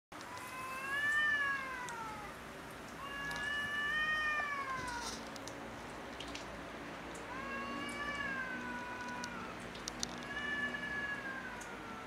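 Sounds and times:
cats yowling: 0.3s - 2.4s, 3.0s - 5.2s, 7.2s - 12.0s.

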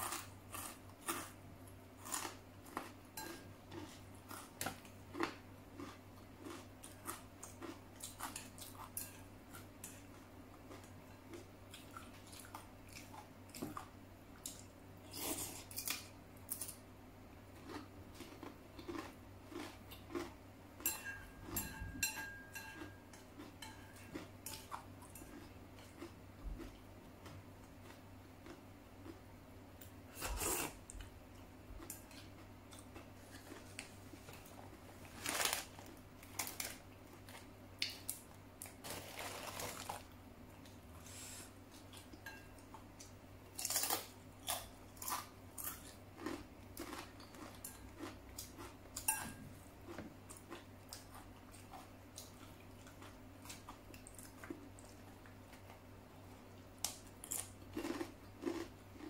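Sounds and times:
person chewing noodles: 0.0s - 1.4s, 2.0s - 16.7s, 17.5s - 20.4s, 22.3s - 29.3s, 43.0s - 49.2s, 49.8s - 59.0s.

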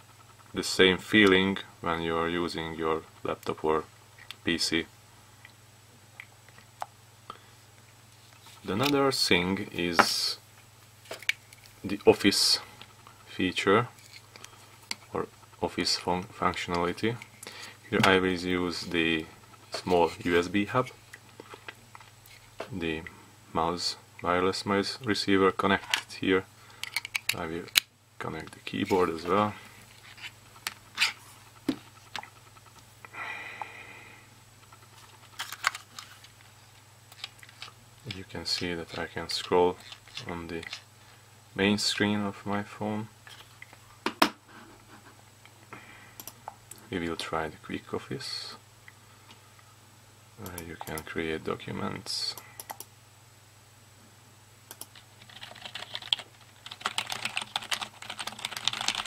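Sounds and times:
steady low hum: 0.0s - 59.0s
computer keyboard typing: 54.7s - 59.0s.

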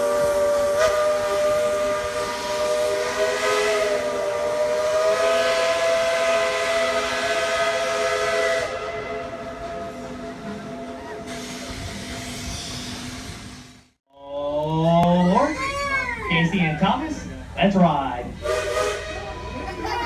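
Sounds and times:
steam locomotive chime whistle: 0.0s - 12.9s, 18.4s - 19.5s.

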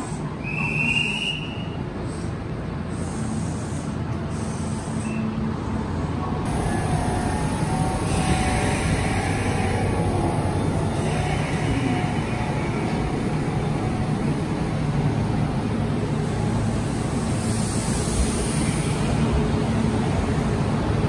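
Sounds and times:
electric train humming: 5.8s - 21.0s.

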